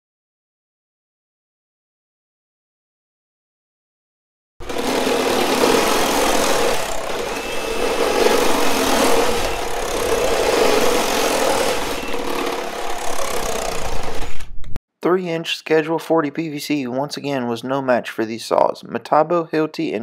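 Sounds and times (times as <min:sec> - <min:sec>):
reciprocating saws cutting plastic pipe: 0:04.6 - 0:14.5.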